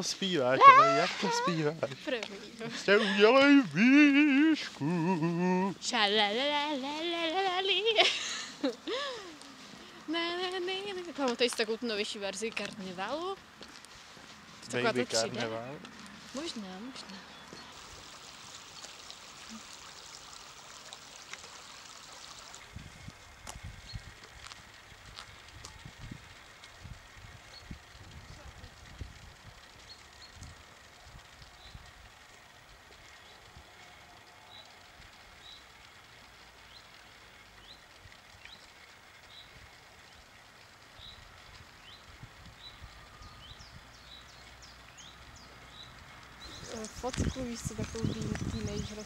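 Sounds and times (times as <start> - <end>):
birds chirping: 0.0 - 13.5, 14.2 - 19.6, 34.4 - 35.7, 36.6 - 49.0
outdoor hiss: 0.0 - 47.8
stream running over stones: 15.9 - 28.9, 44.2 - 49.0.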